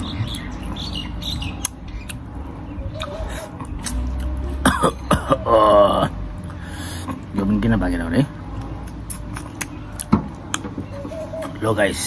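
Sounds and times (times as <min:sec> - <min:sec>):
wet mouth eating sounds: 0:01.6 - 0:02.3, 0:03.0 - 0:04.4, 0:08.8 - 0:10.6.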